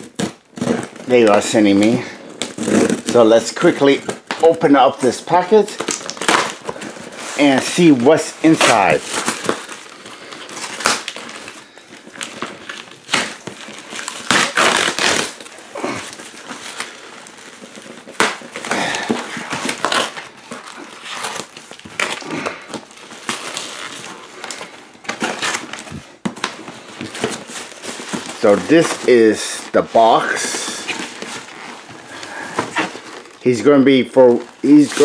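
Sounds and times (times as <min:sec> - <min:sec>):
tissue paper crinkling: 0:00.0 - 0:35.0
cardboard box tearing: 0:01.8 - 0:03.2, 0:12.2 - 0:33.4.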